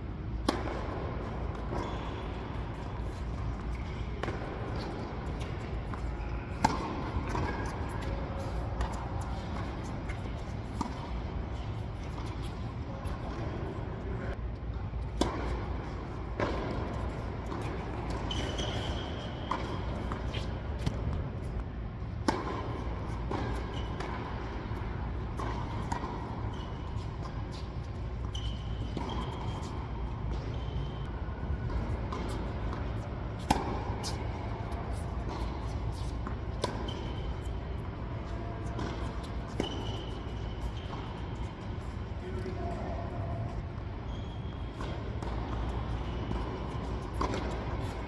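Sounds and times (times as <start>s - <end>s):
low hum of hall: 0.0s - 48.0s
tennis ball hit by rackets: 0.4s - 1.8s, 2.7s - 11.1s, 22.2s - 24.8s, 31.7s - 37.6s, 38.7s - 42.0s, 44.7s - 48.0s.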